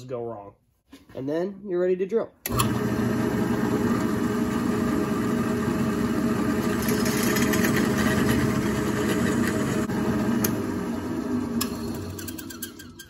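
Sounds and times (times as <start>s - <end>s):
drill press motor running: 2.5s - 12.9s
drill bit grinding into steel: 6.6s - 9.8s.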